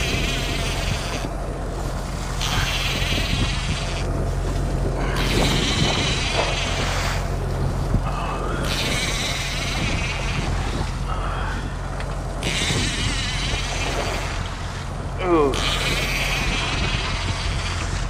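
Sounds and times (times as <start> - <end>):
fishing reel drag buzzing: 0.0 - 1.3, 2.1 - 4.2, 5.0 - 7.4, 8.4 - 11.5, 12.4 - 14.8, 15.4 - 18.0
low engine hum: 0.0 - 18.0.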